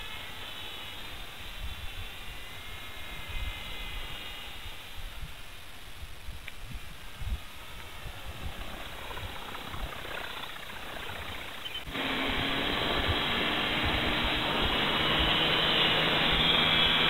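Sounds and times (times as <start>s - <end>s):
model aircraft motor and rotor: 0.0s - 17.0s
rushing drone with low hum: 0.0s - 17.0s
wind thumps: 6.0s - 17.0s.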